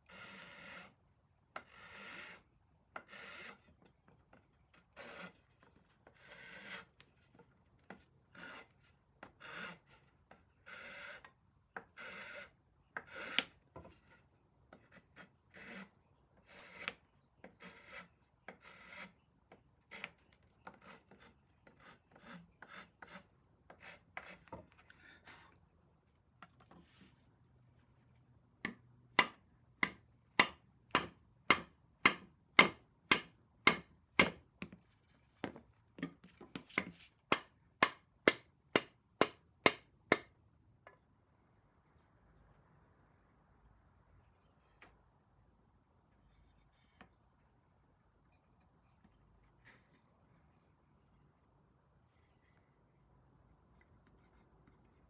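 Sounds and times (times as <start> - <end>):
hand tool scraping wood: 0.0 - 1.0, 1.6 - 3.8, 4.7 - 7.1, 7.8 - 19.2, 19.8 - 25.6.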